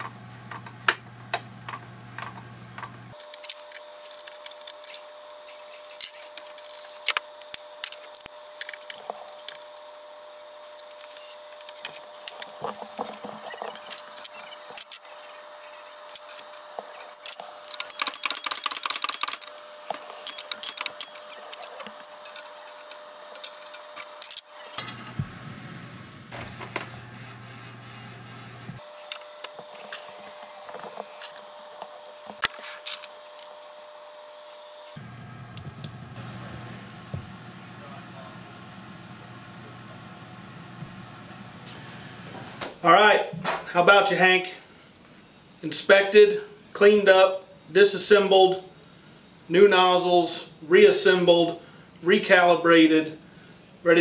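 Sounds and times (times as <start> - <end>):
metal parts clicking and clinking: 16.1 - 25.2.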